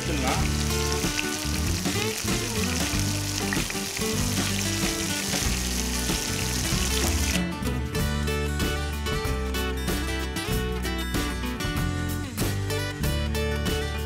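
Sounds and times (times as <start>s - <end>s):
prawns sizzling in hot oil: 0.0s - 7.5s.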